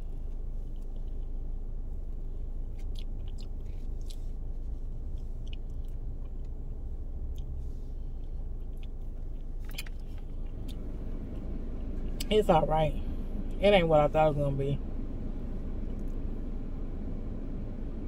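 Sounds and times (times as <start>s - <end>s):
steady low hum: 0.0s - 18.0s
lip and tongue smacks: 2.7s - 4.3s.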